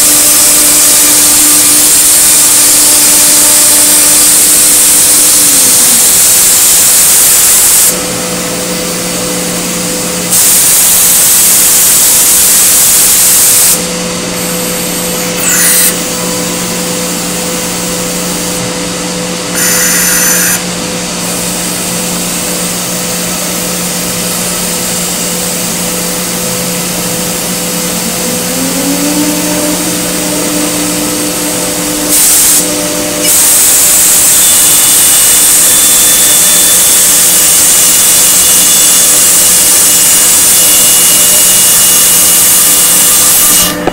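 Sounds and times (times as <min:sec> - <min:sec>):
cnc router spindle whine: 0:00.0 - 0:43.9
loud hissing: 0:26.9 - 0:41.5.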